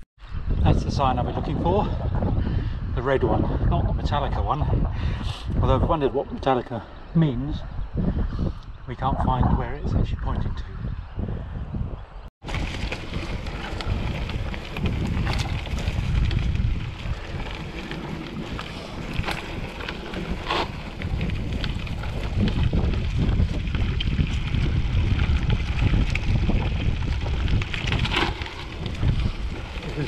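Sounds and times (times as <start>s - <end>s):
wind buffeting microphone: 0.0s - 30.0s
bike tyre noise: 12.4s - 30.0s
bike clicks and knocks: 12.5s - 30.0s.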